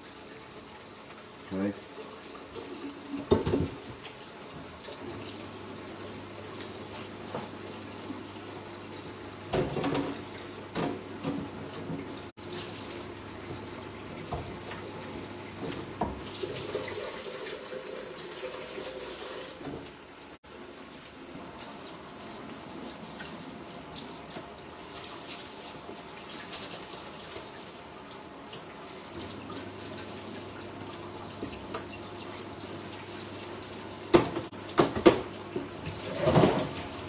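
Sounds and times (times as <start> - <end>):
tap running into sink: 3.2 - 4.1, 9.5 - 12.1, 13.4 - 14.8, 15.6 - 16.9, 34.1 - 36.8.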